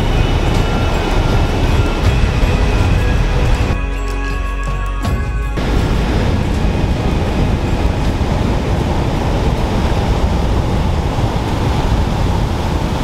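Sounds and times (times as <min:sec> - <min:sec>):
wind noise on microphone: 0:00.0 - 0:13.0
surf breaking over rocks: 0:05.6 - 0:13.0.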